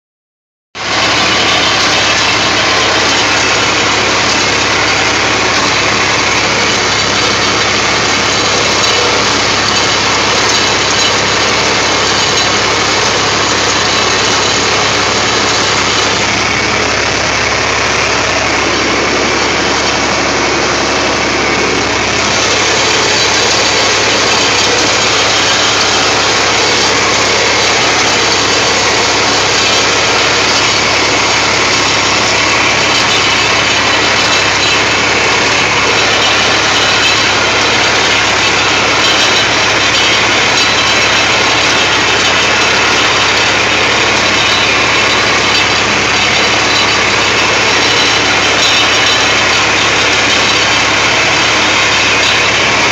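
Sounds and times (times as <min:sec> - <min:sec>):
hay baler working: 0:00.8 - 0:52.9
tractor engine running: 0:00.8 - 0:52.9.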